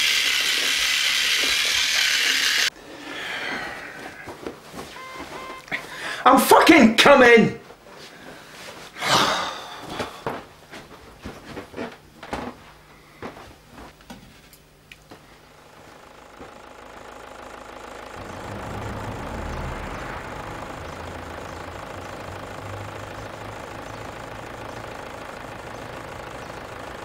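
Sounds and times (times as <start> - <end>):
van engine running: 0.0 - 6.2, 14.6 - 27.0.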